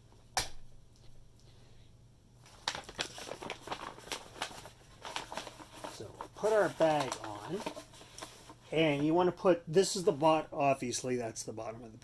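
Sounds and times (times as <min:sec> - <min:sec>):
paper rustling and crinkling: 0:02.4 - 0:09.3.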